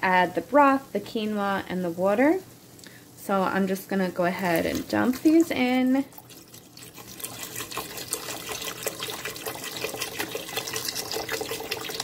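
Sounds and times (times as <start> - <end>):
broth pouring into a pot: 4.4 - 12.0
liquid splashing: 4.4 - 12.0.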